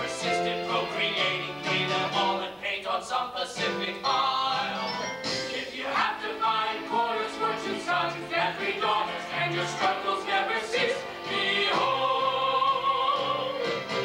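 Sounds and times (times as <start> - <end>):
stage singers performing: 0.0 - 14.0
instrumental accompaniment: 3.6 - 14.0.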